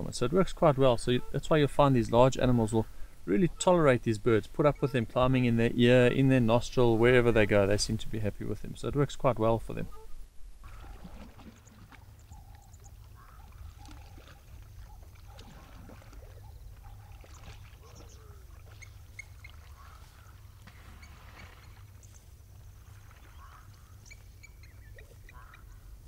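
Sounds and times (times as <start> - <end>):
water sloshing: 9.3 - 25.5
short bird calls: 11.7 - 22.2, 22.8 - 25.9.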